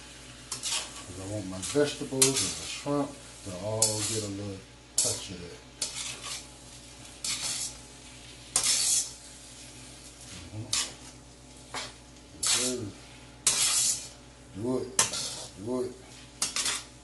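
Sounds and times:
rice sizzling: 0:00.0 - 0:17.0
spatula scraping wok: 0:00.3 - 0:17.0.

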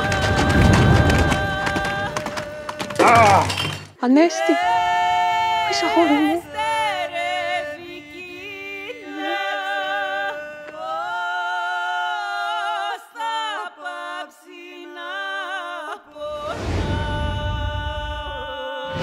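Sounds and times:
person singing unaccompanied: 0:00.0 - 0:19.0.

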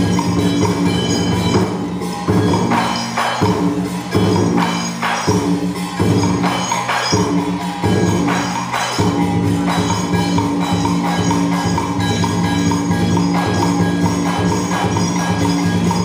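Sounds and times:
percussion striking a steady beat: 0:00.0 - 0:16.0
sustained low instrumental tones: 0:00.0 - 0:16.0.

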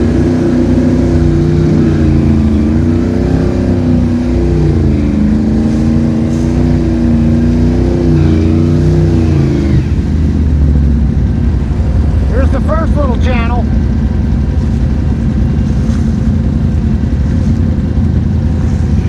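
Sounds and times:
quad bike engine uneven revs: 0:00.0 - 0:12.4.

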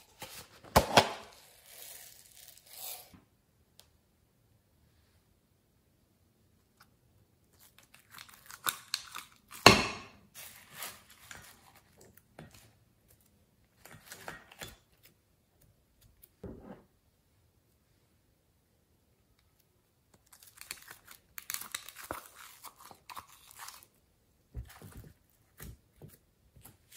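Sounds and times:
slime and foam beads crackling: 0:01.3 - 0:03.1, 0:20.3 - 0:23.9.

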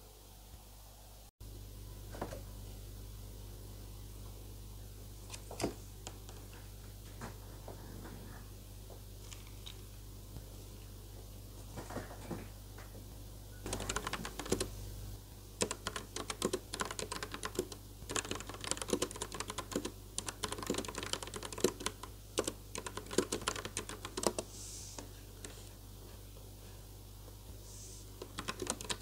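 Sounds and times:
mechanical keyboard typing: 0:13.7 - 0:14.7, 0:15.6 - 0:24.5, 0:28.2 - 0:29.0.

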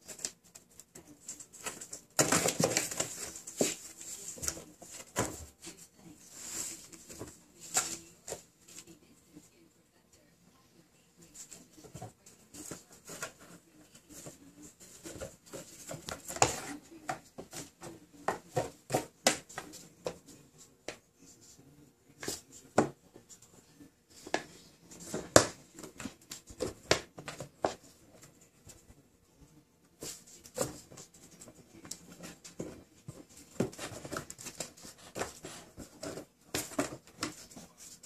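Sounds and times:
kittens scratching on cardboard: 0:00.0 - 0:09.0, 0:11.3 - 0:21.6, 0:29.9 - 0:38.0.

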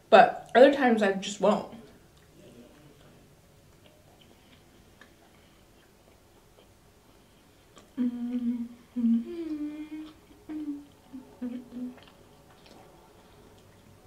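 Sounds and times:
soft chewing clicks: 0:01.8 - 0:08.0, 0:09.4 - 0:14.0
woman humming: 0:08.0 - 0:12.0.

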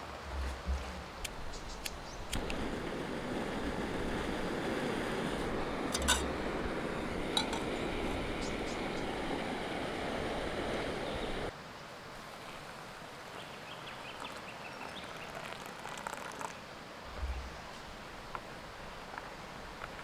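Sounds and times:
gas stove burner hissing: 0:01.2 - 0:11.5
water pouring into metal pot: 0:05.9 - 0:06.3, 0:15.2 - 0:16.6
metal pot clinks: 0:06.0 - 0:06.3.

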